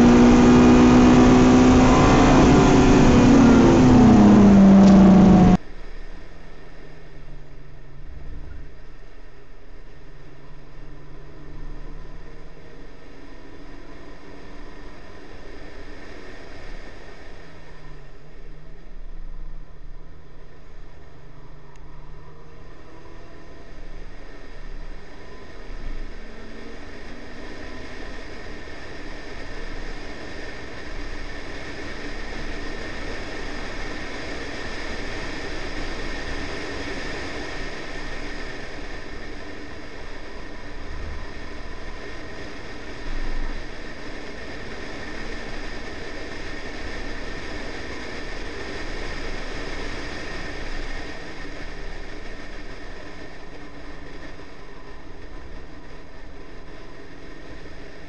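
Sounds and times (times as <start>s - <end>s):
wind rush: 0.0s - 5.6s
car tyre roar: 0.0s - 58.0s.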